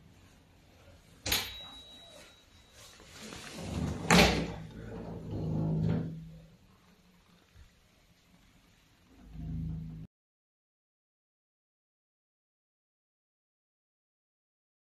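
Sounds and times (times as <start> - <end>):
rustling: 1.9 - 10.0.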